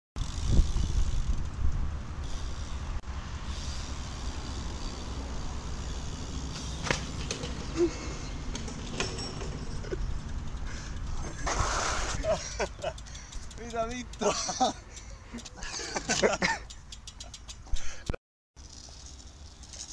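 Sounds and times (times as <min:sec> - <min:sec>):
bike tyres rolling on asphalt: 0:00.2 - 0:17.7, 0:18.6 - 0:19.9.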